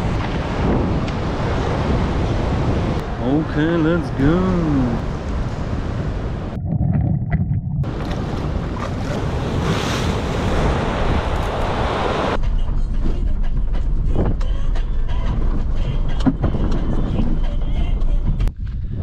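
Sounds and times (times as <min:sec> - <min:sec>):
wind rushing over microphone: 0:00.0 - 0:12.4.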